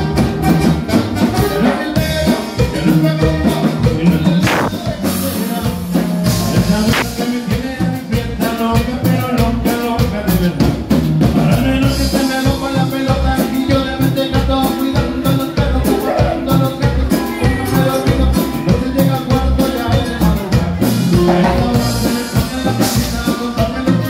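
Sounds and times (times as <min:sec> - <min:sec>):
button accordion: 0:00.0 - 0:07.4
drum kit beat: 0:00.0 - 0:24.0
electric bass: 0:00.0 - 0:24.0.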